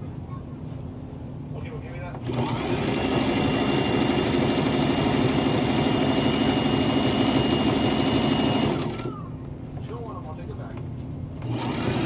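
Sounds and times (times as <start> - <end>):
sewing machine running: 2.2 - 9.2, 11.4 - 12.0.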